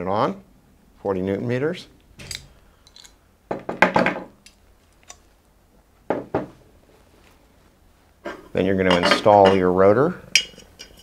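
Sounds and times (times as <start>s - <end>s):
tool knocking on table: 6.1s - 6.6s.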